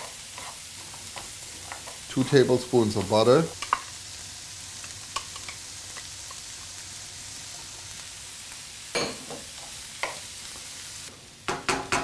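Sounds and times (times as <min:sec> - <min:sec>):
vegetables sizzling in a frying pan: 0:00.0 - 0:12.0
wooden spoon knocking pan: 0:11.5 - 0:12.0.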